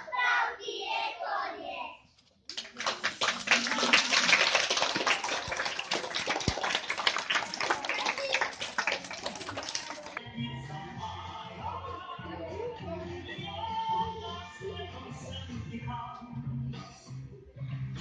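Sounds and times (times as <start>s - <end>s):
children's voices: 0.0s - 2.1s, 7.7s - 10.2s
children clapping: 2.5s - 10.2s.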